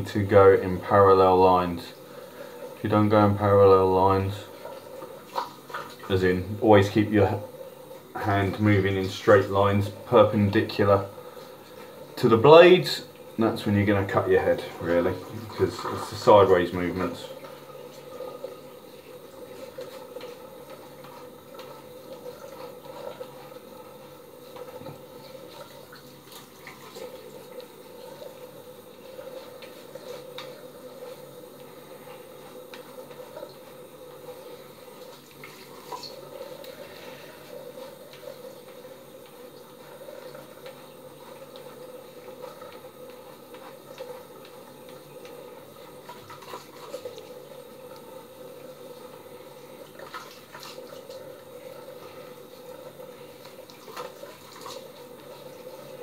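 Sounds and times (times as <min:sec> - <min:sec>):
steady rushing hiss: 0:27.0 - 0:49.8.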